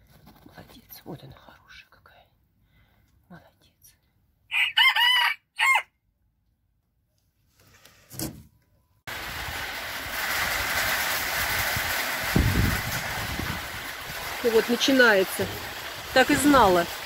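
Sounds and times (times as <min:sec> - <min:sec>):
steady rushing hiss: 0:09.1 - 0:17.0.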